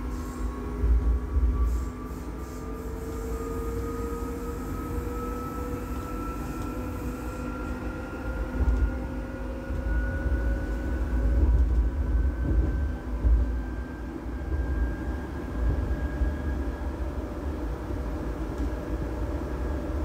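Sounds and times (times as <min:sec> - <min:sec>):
electric train motors whining: 0:00.0 - 0:12.7
train running rumble: 0:00.0 - 0:20.0.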